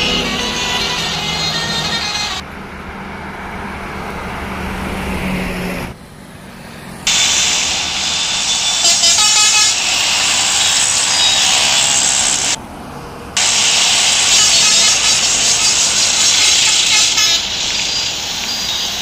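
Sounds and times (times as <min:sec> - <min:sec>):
truck horn: 0:00.0 - 0:02.5, 0:07.1 - 0:12.6, 0:13.4 - 0:19.0
highway traffic: 0:00.0 - 0:19.0
truck engine drone: 0:00.0 - 0:19.0.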